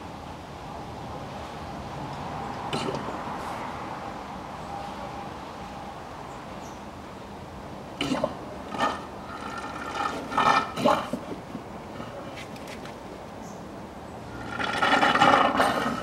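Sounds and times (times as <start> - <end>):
fluid gurgling from a bottle: 8.0 - 11.2, 14.4 - 16.0.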